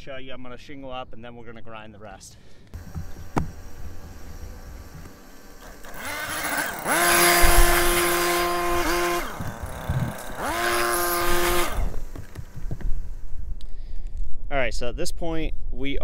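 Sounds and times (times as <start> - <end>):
leaf blower whining: 2.7 - 13.6.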